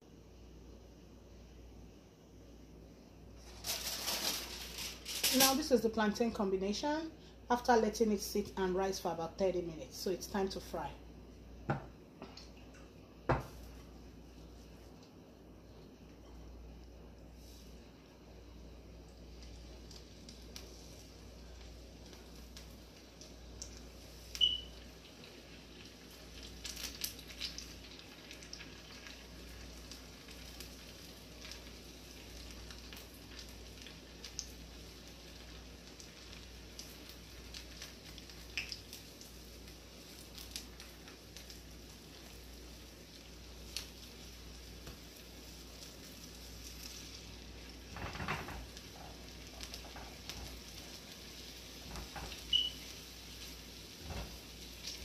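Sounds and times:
hot oil sizzling: 0:03.3 - 0:06.4, 0:17.3 - 0:55.0
oil popping and crackling: 0:19.0 - 0:55.0.

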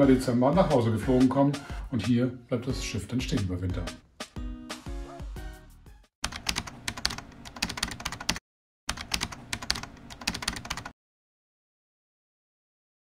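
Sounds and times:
keyboard typing clicks: 0:06.2 - 0:10.9.

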